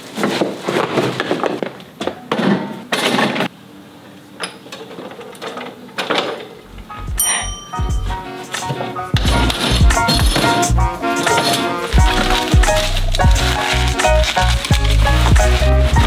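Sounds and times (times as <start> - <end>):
cardboard and plastic scraping: 0.0 - 3.4, 8.6 - 16.0.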